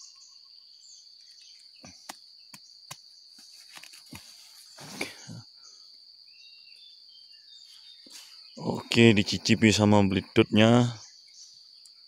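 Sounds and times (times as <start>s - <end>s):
high insect drone: 0.0s - 12.0s
rustling through undergrowth: 3.1s - 5.4s.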